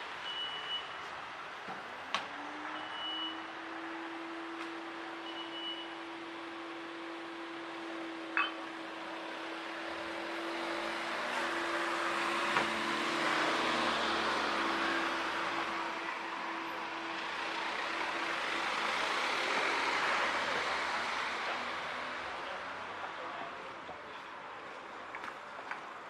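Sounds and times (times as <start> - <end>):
short high beeps: 8.4 - 8.7.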